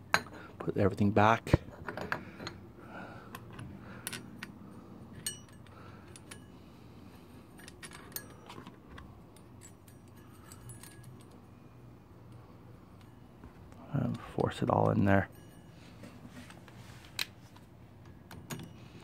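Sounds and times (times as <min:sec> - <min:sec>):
metallic clinks of engine parts: 0:03.3 - 0:06.6, 0:07.4 - 0:11.5, 0:18.0 - 0:19.0.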